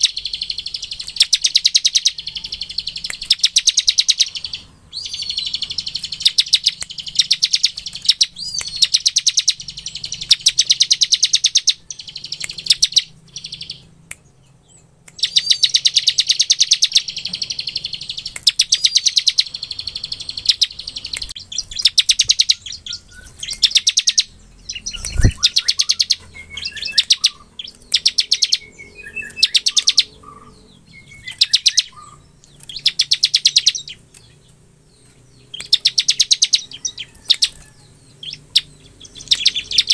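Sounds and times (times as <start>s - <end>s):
bird rattling trill: 0.0s - 13.8s, 15.2s - 28.7s
soft bird chirps: 0.0s - 39.9s.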